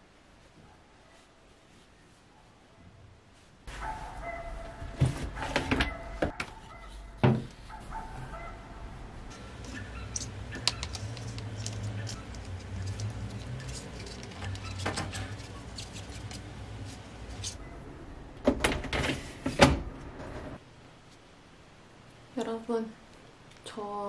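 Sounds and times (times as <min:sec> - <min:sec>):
rubbing lint off mesh: 0:09.3 - 0:17.6.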